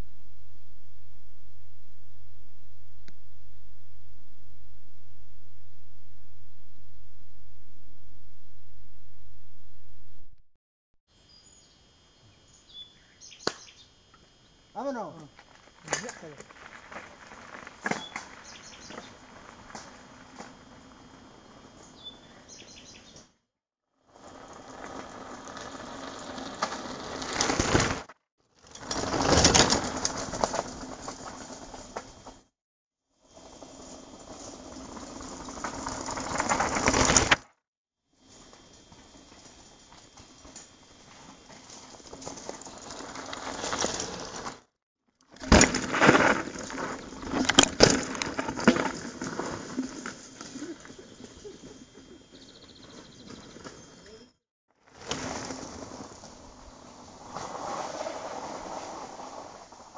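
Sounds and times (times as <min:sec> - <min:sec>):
bike tyres crunching over stones: 0:14.8 - 0:23.0, 0:24.1 - 0:32.4, 0:33.4 - 0:37.4, 0:38.3 - 0:44.6, 0:45.3 - 0:54.2, 0:54.8 - 0:59.9
bike rattling: 0:15.5 - 0:21.0, 0:24.2 - 0:32.3, 0:33.4 - 0:37.4, 0:38.8 - 0:44.6, 0:45.3 - 0:53.8.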